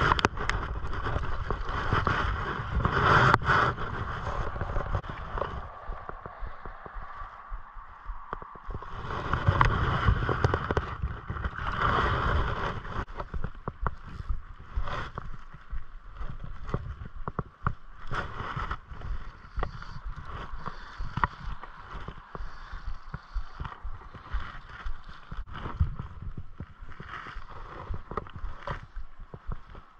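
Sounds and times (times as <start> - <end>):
stream running over stones: 0.0 - 7.5.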